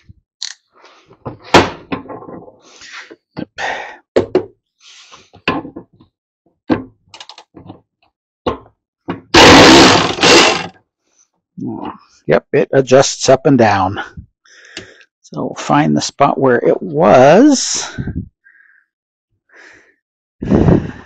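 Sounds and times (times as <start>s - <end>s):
cordless electric ratchet running: 9.4s - 10.7s.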